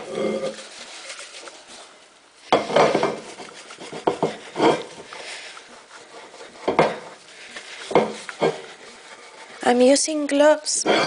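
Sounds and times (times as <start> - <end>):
paper towel wiping glass plate: 0.0 - 11.0
glass plate knocking: 2.6 - 3.3.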